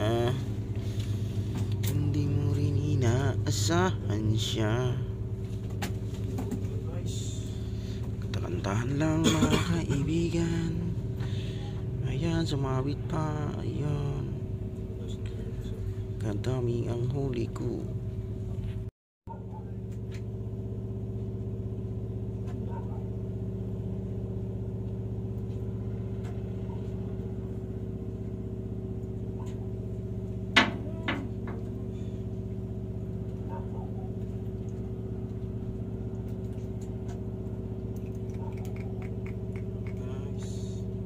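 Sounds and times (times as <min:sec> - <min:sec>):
engine idling: 0:00.0 - 0:41.0.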